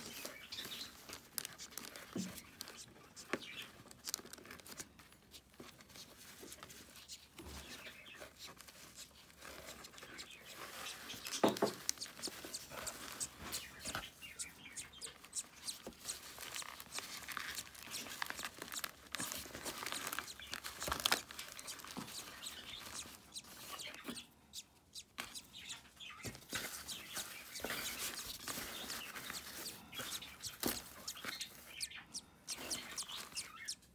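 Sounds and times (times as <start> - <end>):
budgie chirps: 9.8 - 33.9.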